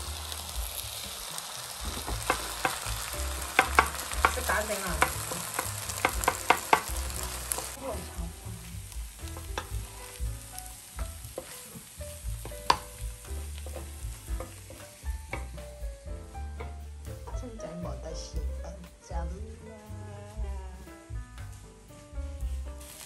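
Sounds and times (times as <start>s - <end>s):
rice sizzling: 0.0s - 23.0s
spatula scraping a pan: 0.8s - 8.0s, 8.6s - 15.6s.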